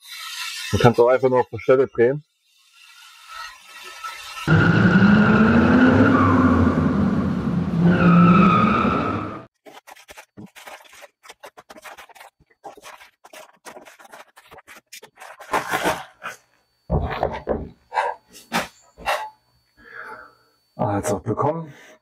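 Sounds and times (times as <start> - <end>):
car engine revving: 4.5 - 9.5.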